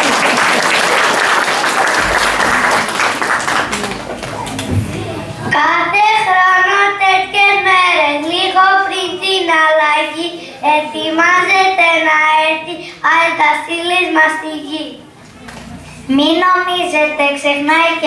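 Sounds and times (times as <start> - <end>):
young children singing: 3.6 - 13.4.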